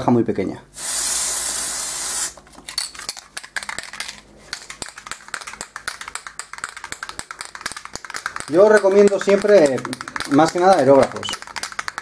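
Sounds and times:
spray bursts: 0.8 - 2.4
spray can rattling: 0.8 - 12.0.

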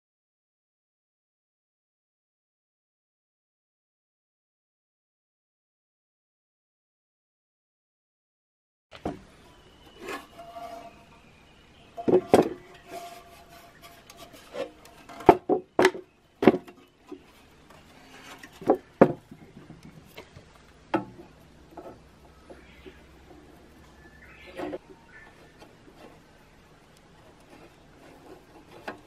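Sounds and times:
metal housing knocking and scraping: 11.9 - 20.3.

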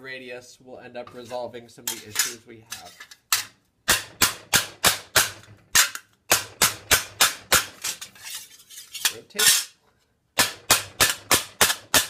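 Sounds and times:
mallet striking thin metal sheet: 3.4 - 8.1, 10.4 - 12.0.

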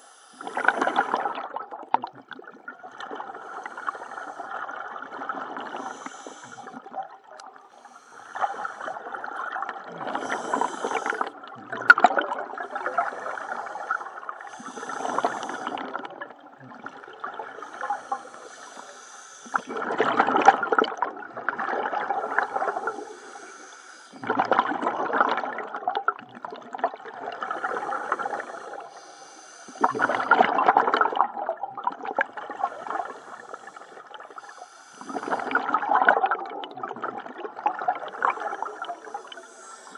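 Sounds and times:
diver breathing through regulator: 0.0 - 1.1, 3.3 - 6.9, 7.7 - 9.2, 9.9 - 11.4, 12.5 - 16.2, 17.4 - 19.9, 22.1 - 24.3, 27.5 - 30.5, 32.5 - 35.8, 38.0 - 39.9
bubbling exhalations: 8.4 - 18.5, 29.7 - 33.3, 33.9 - 39.9.

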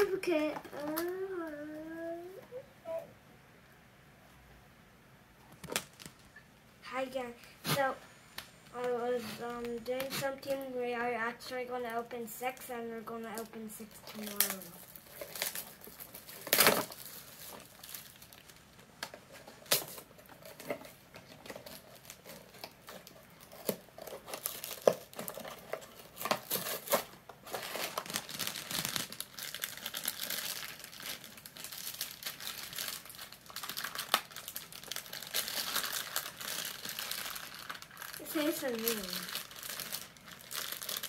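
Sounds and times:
foil bag crinkling: 11.8 - 41.0
cardboard box tearing: 21.6 - 29.1.

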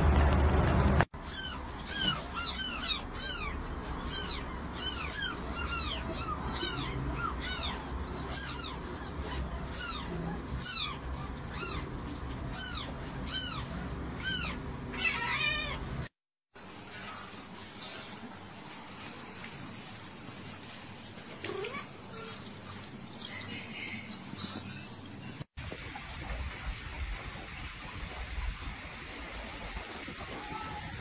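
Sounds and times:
kittens mewing: 1.2 - 16.1.

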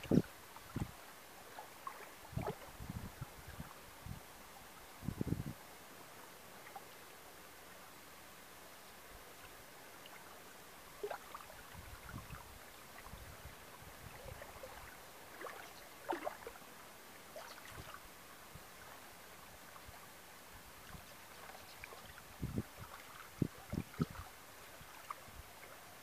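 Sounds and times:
steady light hiss: 0.0 - 26.0
paddle splashing in water: 14.1 - 16.6.

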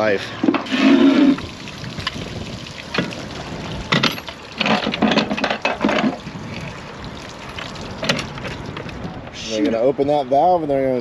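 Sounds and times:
water splashing and trickling: 0.0 - 10.0
pipe handling noise: 0.3 - 2.2, 2.9 - 3.2, 3.8 - 6.3, 7.6 - 9.0.

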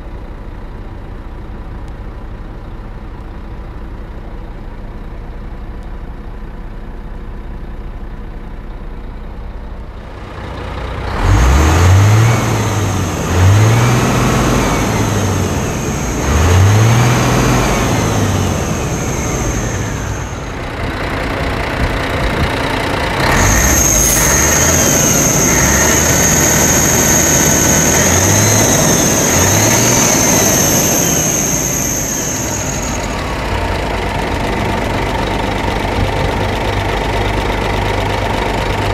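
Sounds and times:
high whine: 9.8 - 38.9
diesel truck engine revving: 9.9 - 38.9.

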